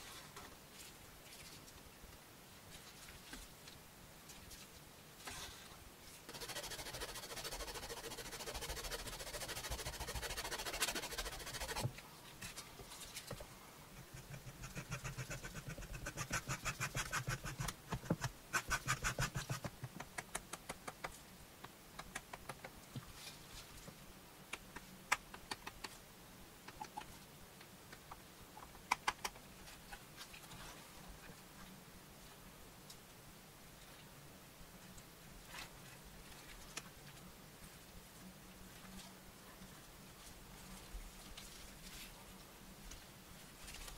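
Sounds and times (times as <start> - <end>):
rubbing leather: 6.3 - 11.9.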